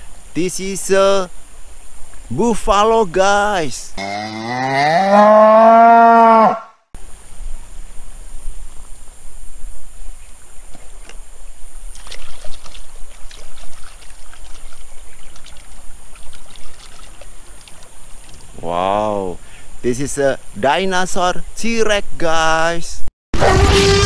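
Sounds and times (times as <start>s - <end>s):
cow mooing: 4.0s - 6.8s
water splashing and trickling: 11.8s - 18.9s.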